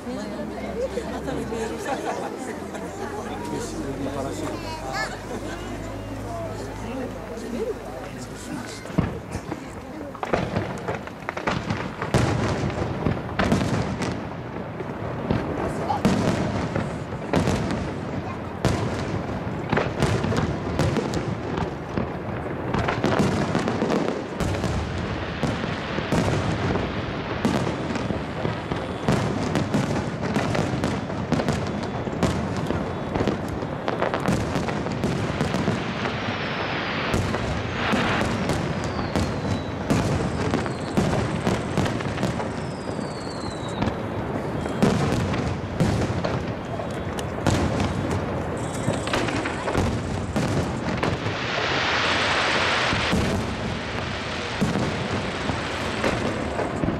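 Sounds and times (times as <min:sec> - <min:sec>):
firework shells booming: 0:00.8 - 0:56.9
falling firework whistles: 0:27.4 - 0:56.9.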